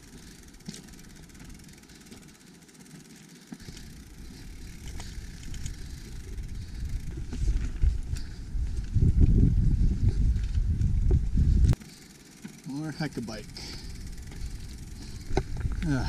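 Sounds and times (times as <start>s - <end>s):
bike ticks and rattles: 0.0s - 16.0s
wind rumble on microphone: 4.2s - 11.8s, 13.9s - 16.0s.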